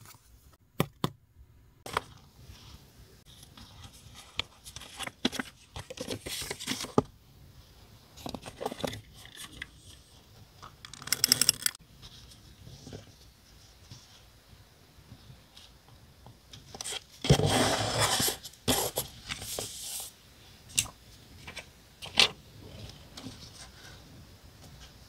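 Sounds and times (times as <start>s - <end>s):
paper rustling and scraping: 1.9s - 7.0s, 16.7s - 20.2s.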